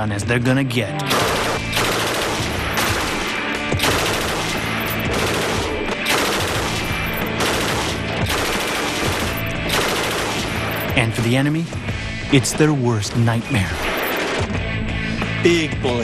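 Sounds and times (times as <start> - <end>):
machine gun firing bursts: 1.1 - 10.9.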